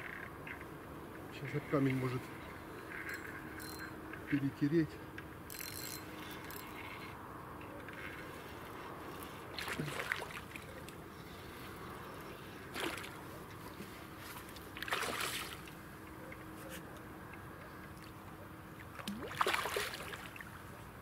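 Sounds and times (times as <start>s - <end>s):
fish splashing in water: 9.5s - 11.0s, 12.7s - 13.2s, 14.7s - 15.8s, 18.8s - 20.6s.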